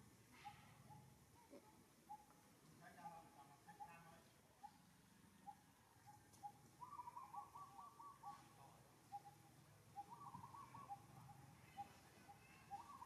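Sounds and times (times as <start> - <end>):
bird trill: 0.3 - 1.1, 5.4 - 13.0
whistled bird calls: 5.4 - 13.0.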